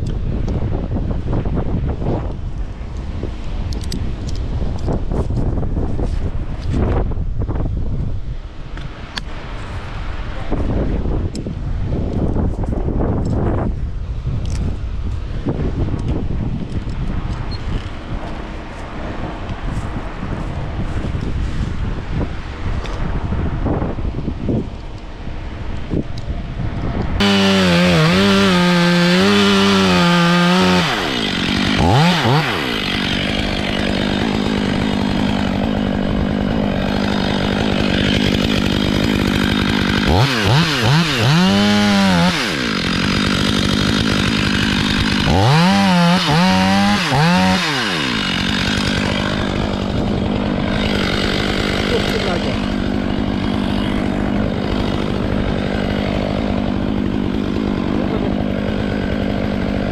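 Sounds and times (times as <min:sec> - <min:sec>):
chainsaw cutting wood: 0:27.2 - 0:59.9.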